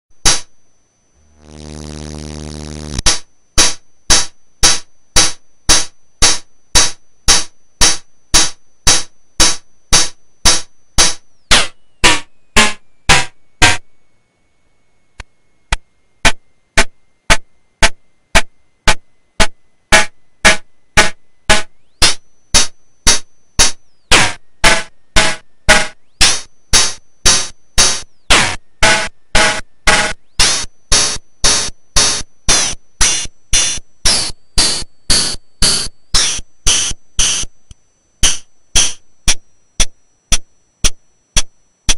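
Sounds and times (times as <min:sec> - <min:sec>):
electronic metallic percussion hits: 0:00.1 - 0:00.6, 0:02.9 - 0:13.9, 0:16.2 - 0:41.9.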